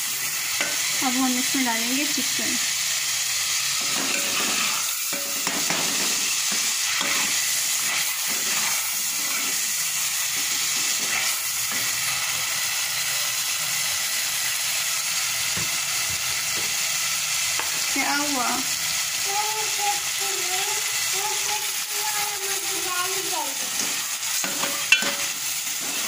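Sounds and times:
sauce sizzling in oil: 0:00.0 - 0:26.0
ladle stirring and scraping pot: 0:03.7 - 0:12.0, 0:23.7 - 0:26.0.

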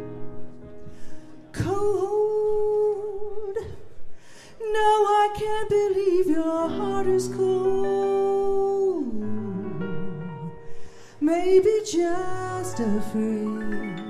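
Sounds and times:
woman singing a slow ballad: 0:01.5 - 0:14.0
keyboard chords: 0:06.5 - 0:14.0.

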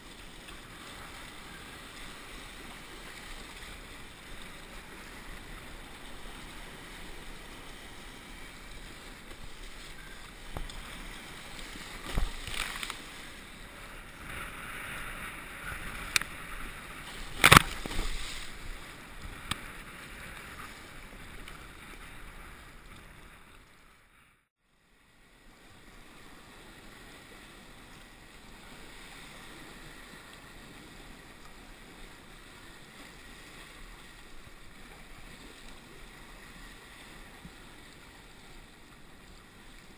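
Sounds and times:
paddle splashes: 0:00.0 - 0:23.9
rush of water and wind: 0:00.0 - 0:39.9.

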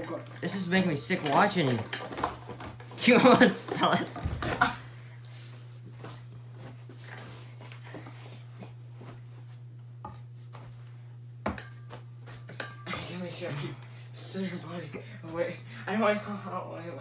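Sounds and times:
office chair spinning: 0:00.0 - 0:04.7
steady low hum: 0:00.0 - 0:17.0.

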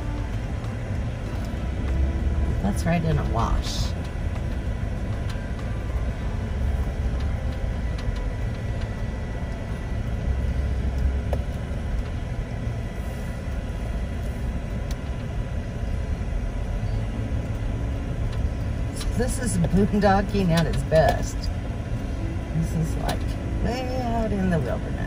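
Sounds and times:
vehicle driving on dirt road: 0:00.0 - 0:25.0.

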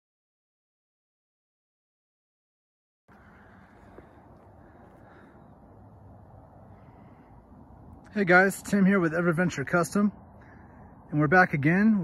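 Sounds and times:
faint outdoor background noise: 0:03.1 - 0:12.0.

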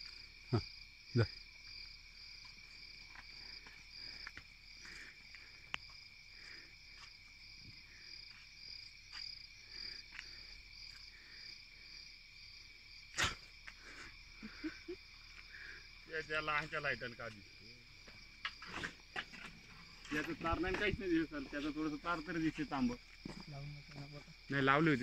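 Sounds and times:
crickets trilling: 0:00.0 - 0:25.0.

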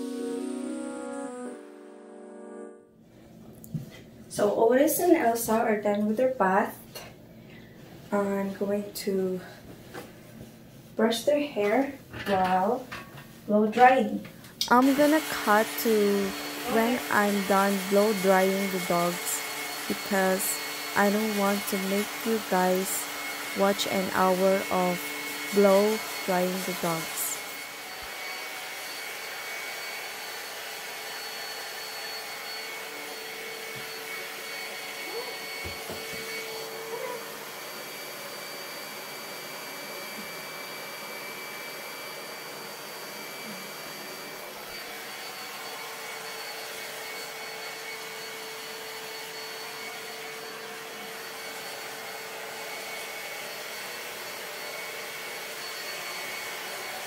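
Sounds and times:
hair dryer blowing: 0:14.5 - 0:57.0.

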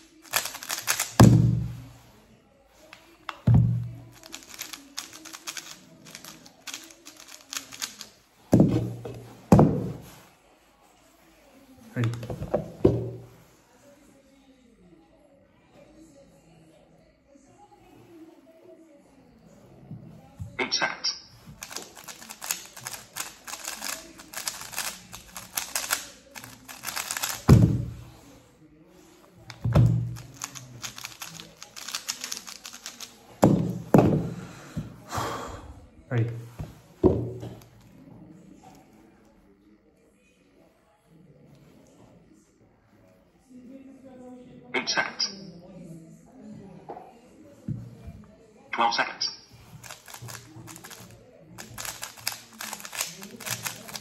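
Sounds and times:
puzzle cube clicking: 0:00.2 - 0:01.6, 0:04.1 - 0:08.1, 0:21.6 - 0:27.9, 0:29.5 - 0:34.0, 0:49.2 - 0:51.0, 0:51.6 - 0:54.0
cube thudding on mat: 0:00.4 - 0:01.9, 0:03.4 - 0:04.6, 0:08.5 - 0:10.1, 0:26.9 - 0:28.0, 0:29.6 - 0:30.5, 0:33.4 - 0:34.4.

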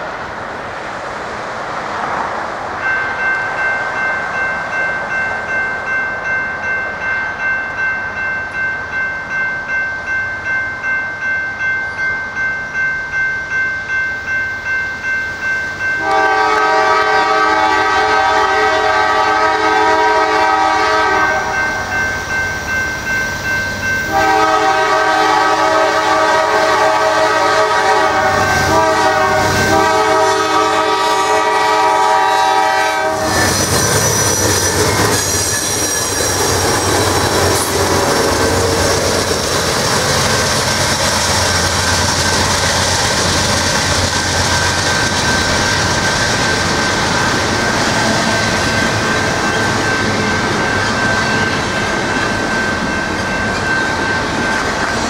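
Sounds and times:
crossing bell ringing: 0:02.7 - 0:55.0
locomotive horn chord: 0:16.0 - 0:21.9, 0:24.1 - 0:33.4
train wheels clickety-clack: 0:27.4 - 0:55.0
wheel squeal: 0:33.2 - 0:39.6.

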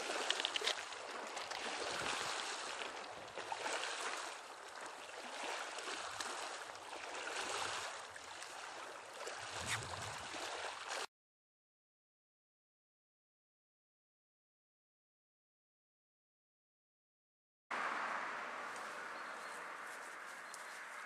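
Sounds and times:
small waves washing on beach: 0:00.0 - 0:11.1.

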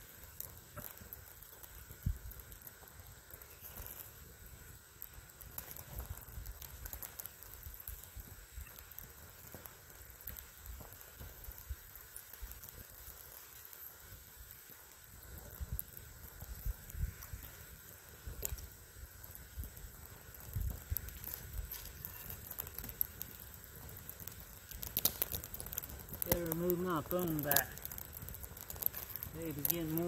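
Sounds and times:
campfire crackling and popping: 0:00.0 - 0:30.0.

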